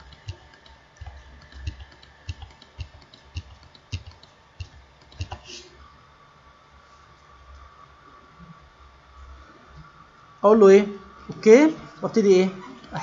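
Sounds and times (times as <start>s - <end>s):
keyboard and mouse clicking: 0.0s - 5.6s.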